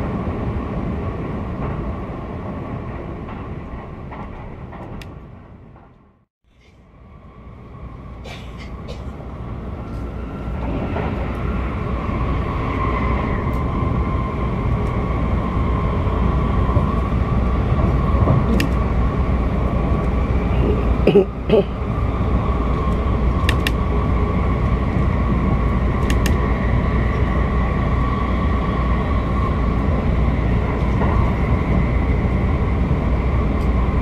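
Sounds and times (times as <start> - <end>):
train wheels rumbling on rail: 0.0 - 34.0
constant high hum: 6.5 - 10.4.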